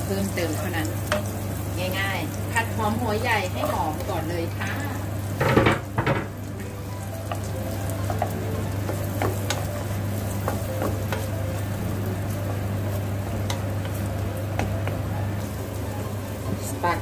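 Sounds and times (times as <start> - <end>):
onion sizzling in a frying pan: 0.0 - 17.0
wooden spatula stirring: 7.0 - 17.0.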